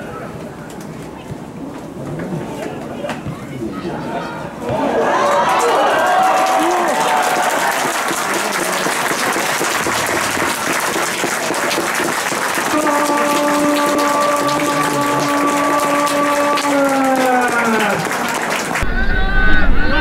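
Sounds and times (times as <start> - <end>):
crowd applauding and cheering: 4.8 - 19.1.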